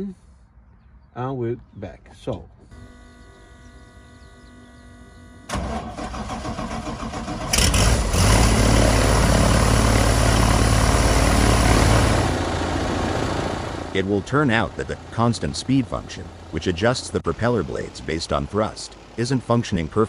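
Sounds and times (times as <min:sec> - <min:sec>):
faint steady hum: 0:02.3 - 0:05.8
aircraft engine idling: 0:02.7 - 0:07.6, 0:08.6 - 0:20.0.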